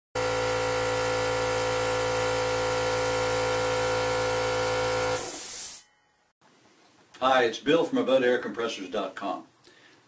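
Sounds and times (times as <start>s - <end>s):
air compressor running: 0.2s - 5.8s.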